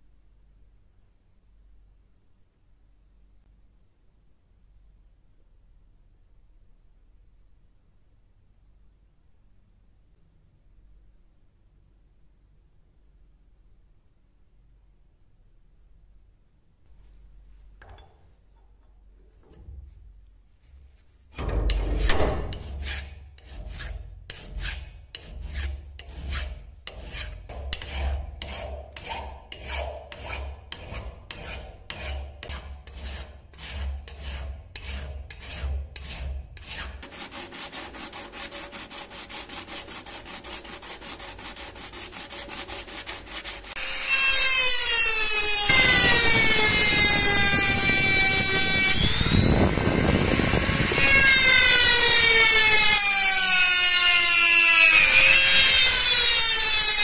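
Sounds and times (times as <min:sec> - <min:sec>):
file scraping over steel: 0:21.6 - 0:57.0
rotary grinding tool whine: 0:37.0 - 0:57.0.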